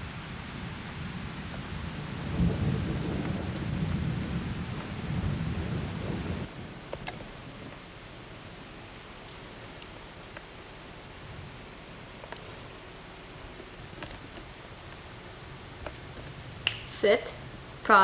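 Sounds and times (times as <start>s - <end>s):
faint ticks: 6.8s - 7.8s, 9.2s - 10.5s, 12.2s - 12.6s.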